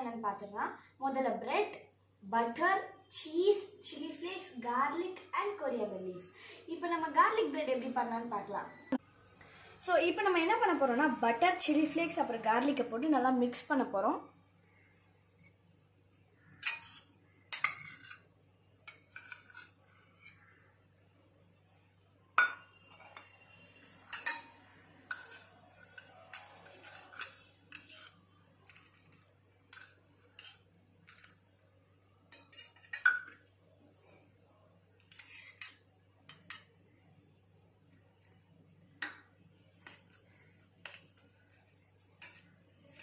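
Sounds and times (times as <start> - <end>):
metal spoon clinking on bowls: 16.6 - 18.2, 22.4 - 31.5, 32.3 - 33.5, 39.0 - 43.0.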